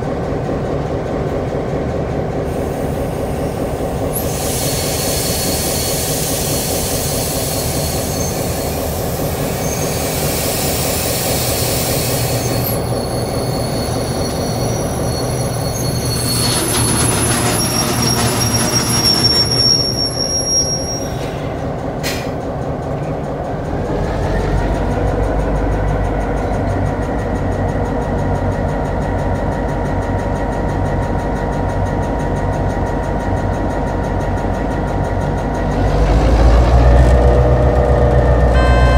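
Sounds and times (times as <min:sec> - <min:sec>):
freight train rolling: 0:00.0 - 0:38.9
wheels squealing on rails: 0:02.5 - 0:27.6, 0:30.4 - 0:38.9
diesel engine running: 0:35.6 - 0:38.9.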